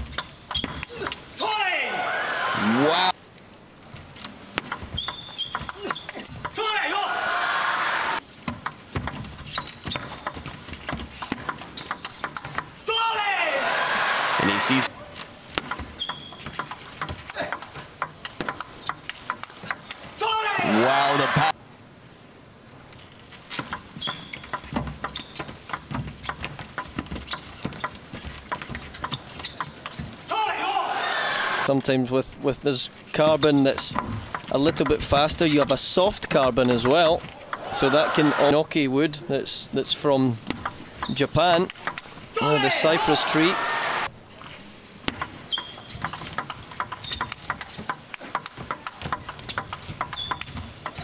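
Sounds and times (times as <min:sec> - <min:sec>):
shoe squeaks on court floor: 0:00.1 - 0:01.0, 0:04.9 - 0:06.5, 0:09.4 - 0:10.2, 0:11.7 - 0:12.2, 0:15.9 - 0:16.7, 0:24.0 - 0:25.7, 0:27.2 - 0:28.3, 0:28.9 - 0:30.2, 0:45.5 - 0:47.8, 0:49.7 - 0:50.6
table tennis ball clicking: 0:45.1 - 0:51.0.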